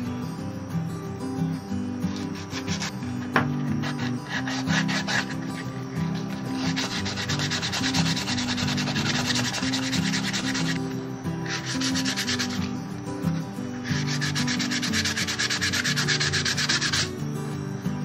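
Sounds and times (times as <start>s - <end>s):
background music: 0.0s - 18.0s
sandpaper rubbing on wood: 2.1s - 3.0s, 3.7s - 10.8s, 11.4s - 12.7s, 13.8s - 17.1s.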